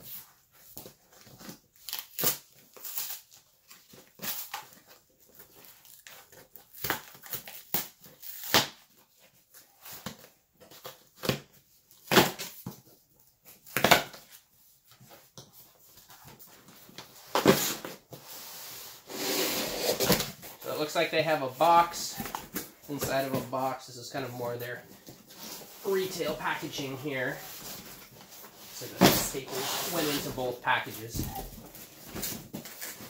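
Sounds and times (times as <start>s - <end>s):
cardboard ripping and scraping: 17.3s - 20.4s, 25.2s - 33.0s.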